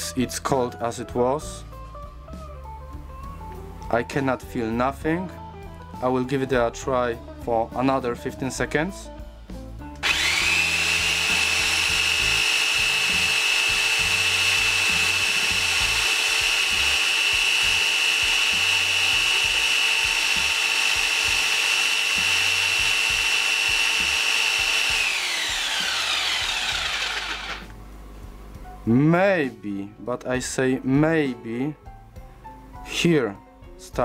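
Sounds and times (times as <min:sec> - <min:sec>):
electric impact wrench motor whine: 0:10.0 - 0:27.8.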